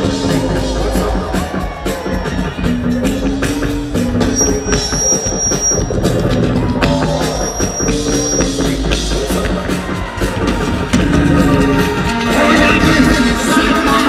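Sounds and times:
bass line: 0.0 - 14.0
drum kit beats: 0.0 - 14.0
live band music: 0.3 - 14.0
high held note: 4.2 - 6.2.

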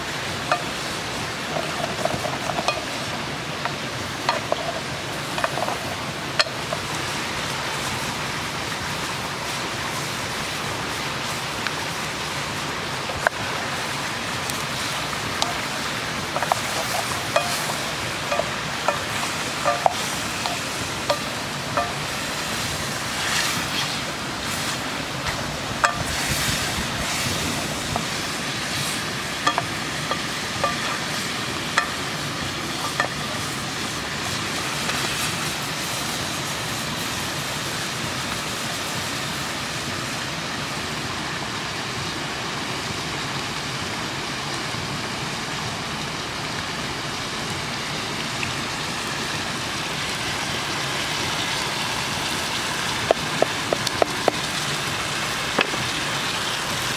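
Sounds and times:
meat and onions sizzling in pot: 0.0 - 41.8, 46.3 - 56.9
wooden spatula stirring: 1.4 - 6.9, 15.4 - 22.6.

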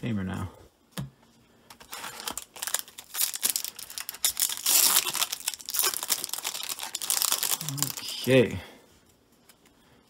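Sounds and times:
foil wrapper crinkling and tearing: 1.8 - 8.5.

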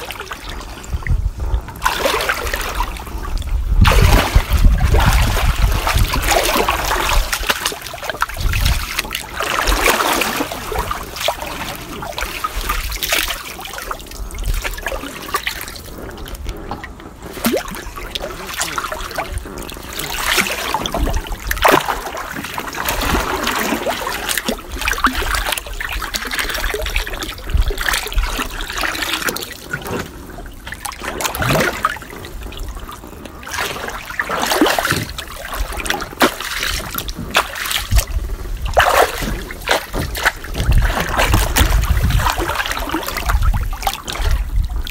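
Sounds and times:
trickling water: 0.0 - 44.9
water splashing in pool: 0.0 - 44.9.

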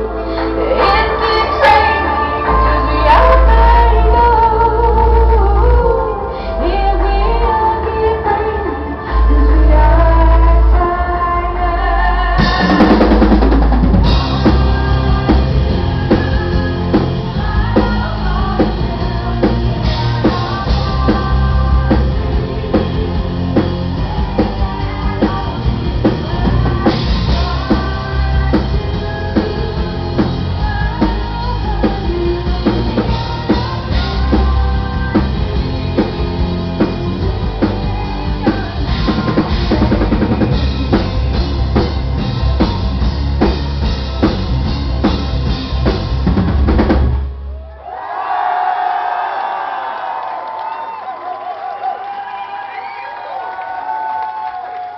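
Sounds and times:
bass: 0.0 - 47.8
woman singing: 0.5 - 13.4, 14.0 - 43.0
distorted electric guitar: 11.8 - 47.5
drum kit: 12.2 - 47.7.

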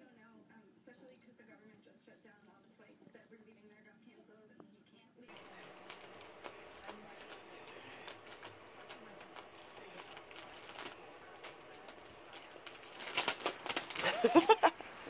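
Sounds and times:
plastic packet crinkling: 5.3 - 15.0.

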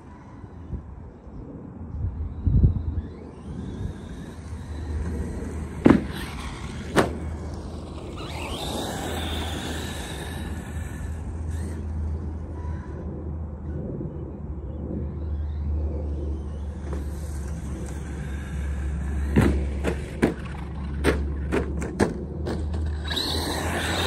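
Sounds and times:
electric motor whining: 2.9 - 12.4, 22.8 - 24.0.

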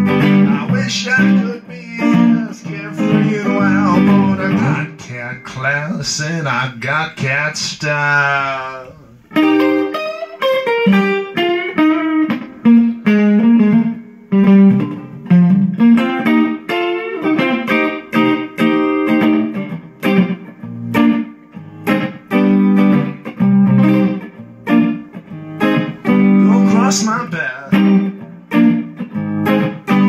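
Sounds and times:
electric guitar playing: 0.0 - 30.0.

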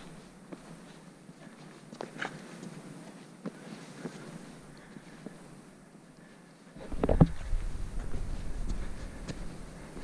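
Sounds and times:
footsteps on stone: 0.0 - 5.4, 6.8 - 10.0
wind noise on microphone: 6.8 - 10.0.

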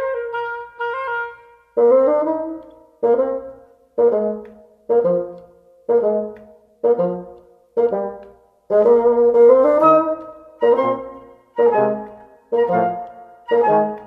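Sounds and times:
brass playing short chords: 7.8 - 14.0.

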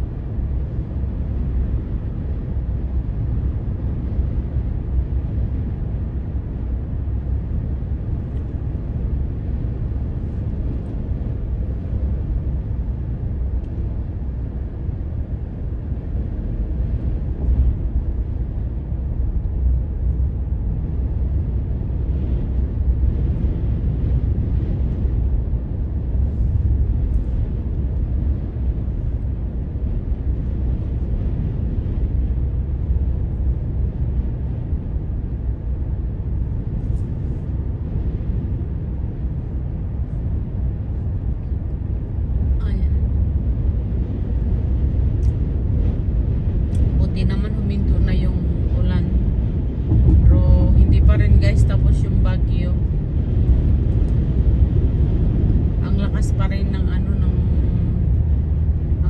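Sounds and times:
car engine and tyre noise: 0.0 - 59.0.

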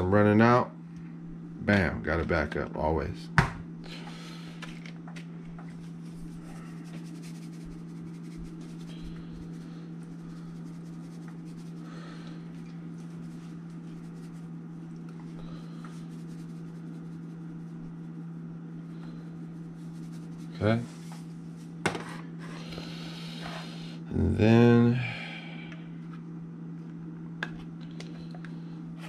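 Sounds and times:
low hum: 0.0 - 29.0
shaker can sprinkling: 5.6 - 18.2, 19.3 - 21.8
hands rubbing spice: 5.6 - 21.8.

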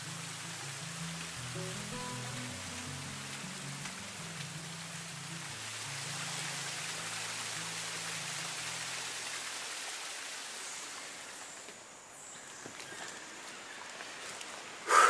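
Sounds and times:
low background music: 0.0 - 9.7
waterfall splashing over rocks: 0.0 - 15.0.

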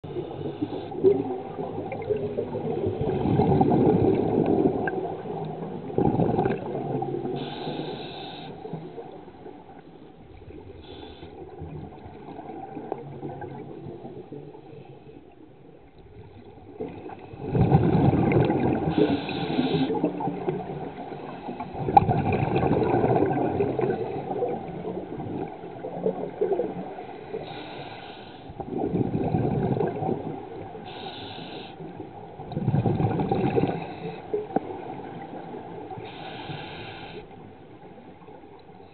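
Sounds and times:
exhaled bubbles gurgling underwater: 0.0 - 38.9
regulator inhalation hisses: 7.4 - 8.7, 10.8 - 11.4, 18.9 - 20.0, 27.4 - 28.5, 30.9 - 31.9, 36.0 - 37.3.

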